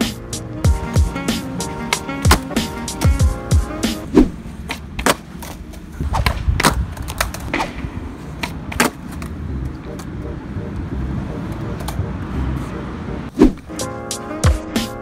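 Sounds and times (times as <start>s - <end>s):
skateboard wheels rolling: 0.0s - 15.0s
skateboard clattering: 1.4s - 3.2s, 4.6s - 9.4s
skateboard clacks on concrete: 4.6s - 9.4s.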